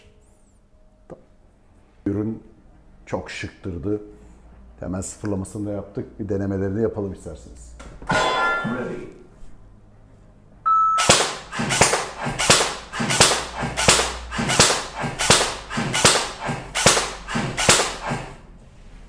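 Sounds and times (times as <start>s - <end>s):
airsoft gun shots: 11.0s - 18.4s.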